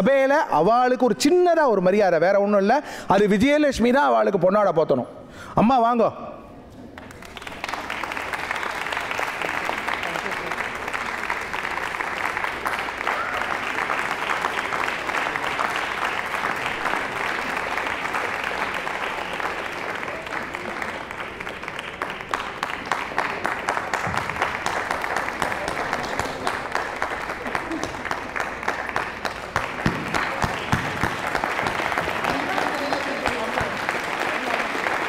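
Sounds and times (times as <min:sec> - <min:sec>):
audience applauding: 0:07.0 - 0:35.0
single claps: 0:27.7 - 0:35.0.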